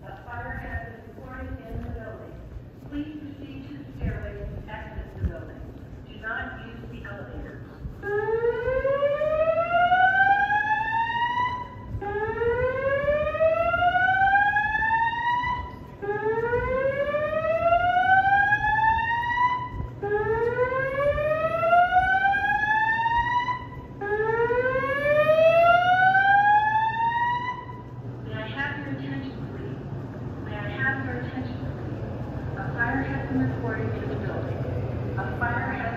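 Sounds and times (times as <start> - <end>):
fire alarm slow whoop: 8.1 - 27.9.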